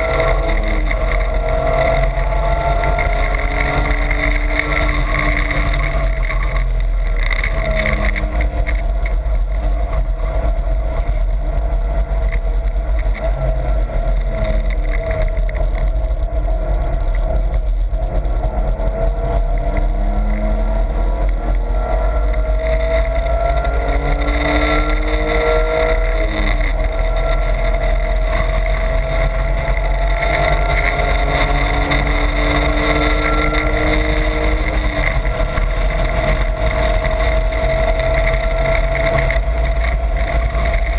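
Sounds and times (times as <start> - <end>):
car engine revving: 0.0 - 40.9
low road rumble: 0.0 - 40.9.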